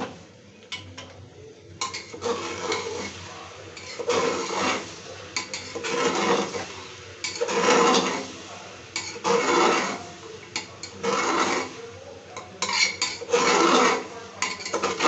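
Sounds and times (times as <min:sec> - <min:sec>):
metal ladle scraping a pot: 0:01.8 - 0:03.2, 0:03.8 - 0:08.3, 0:09.0 - 0:11.8, 0:12.4 - 0:15.0.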